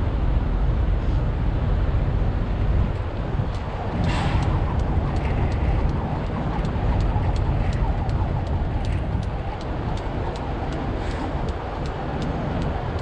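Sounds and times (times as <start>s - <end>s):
low rumble: 0.0s - 13.0s
jump rope clicking on ground: 3.0s - 13.0s.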